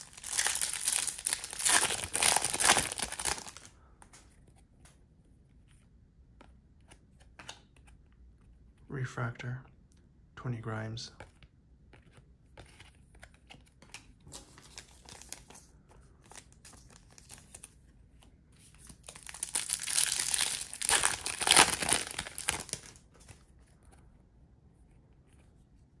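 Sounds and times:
wrapper tearing and crinkling: 0.0 - 3.7, 18.9 - 23.0.

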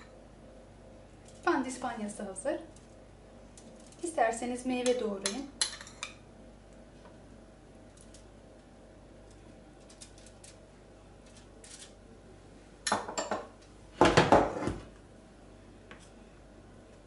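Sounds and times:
kitchenware clattering: 4.8 - 6.2, 12.9 - 14.8.

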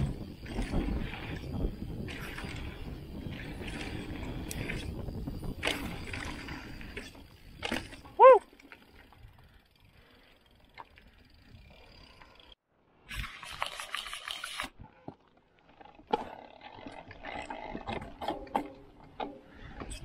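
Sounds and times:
bike clattering over bumps: 0.0 - 9.2, 15.0 - 20.0
tyre and wind noise: 0.0 - 20.0.

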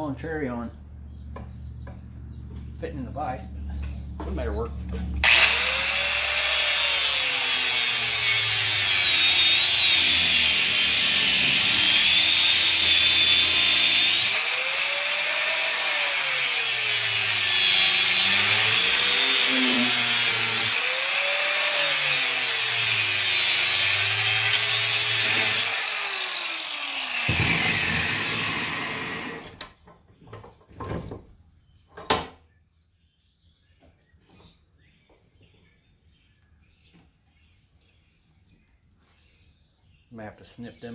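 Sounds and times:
angle grinder cutting metal: 5.2 - 29.6
grinder spinning down: 5.2 - 29.6.

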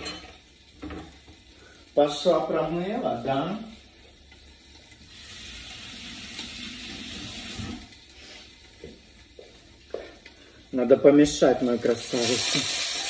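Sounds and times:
vegetables sizzling in a pan: 0.0 - 13.0
kitchen tap running: 4.3 - 8.1, 11.8 - 13.0.

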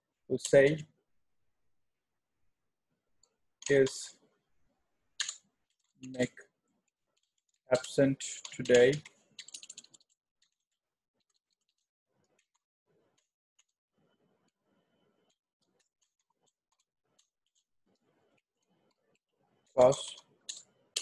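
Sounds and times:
computer keyboard typing: 5.2 - 6.3, 7.2 - 12.6.

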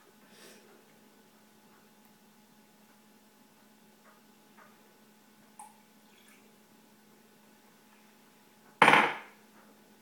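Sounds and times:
glass cup clunk on countertop: 8.8 - 9.3.

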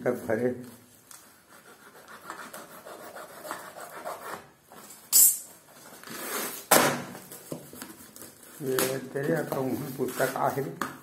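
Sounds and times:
cardboard and paper scraping: 5.7 - 10.7.

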